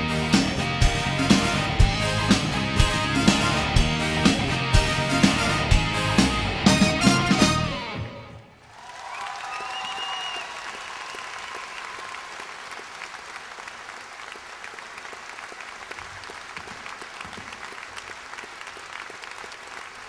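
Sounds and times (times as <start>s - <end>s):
audience applauding: 8.6s - 20.0s.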